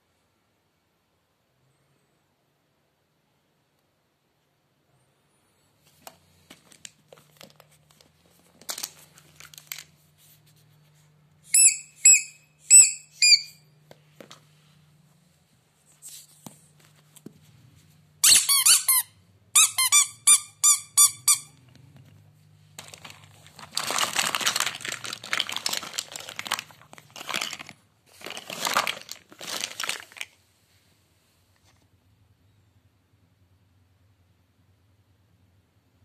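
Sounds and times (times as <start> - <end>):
plastic toys rustling: 5.8 - 10.7, 21.3 - 30.5
rubber squeeze toys squeaking: 11.4 - 13.7, 18.2 - 21.7.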